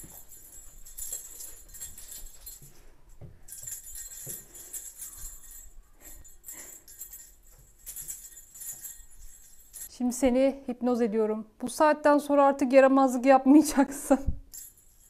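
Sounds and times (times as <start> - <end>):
small bell jingling: 0.0 - 9.9, 14.5 - 15.0.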